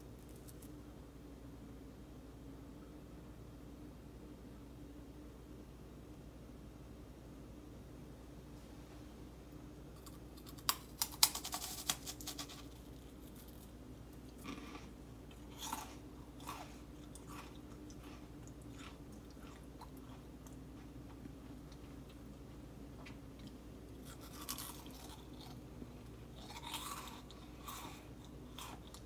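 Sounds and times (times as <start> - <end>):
meringue cookies crunching: 0.0 - 0.8, 9.9 - 29.0.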